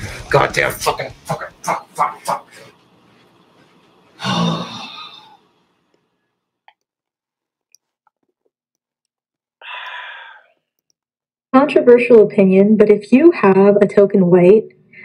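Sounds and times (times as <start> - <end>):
man sighing heavily: 4.2 - 5.4, 9.6 - 10.5.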